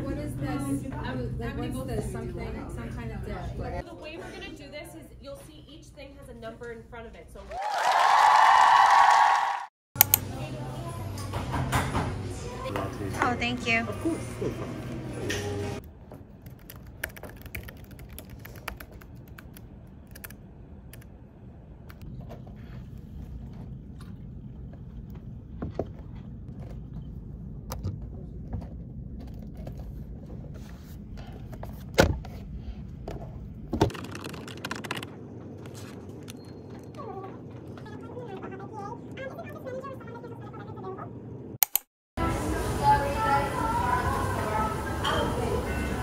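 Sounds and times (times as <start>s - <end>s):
low room hum: 10.0s - 41.6s
computer keyboard typing: 16.4s - 21.1s, 33.9s - 35.1s.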